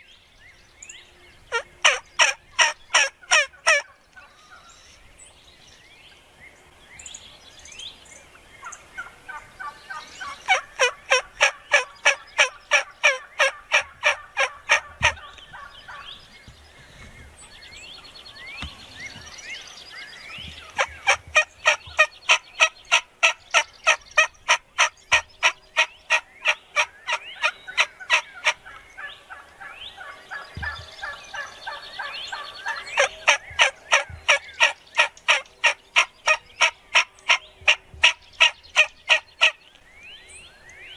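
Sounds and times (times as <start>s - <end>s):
turkeys calling sharp notes: 1.5s - 4.3s, 8.6s - 16.2s, 20.3s - 39.6s
turkey yelps and chirps: 1.5s - 4.6s, 8.6s - 16.1s, 20.5s - 39.6s.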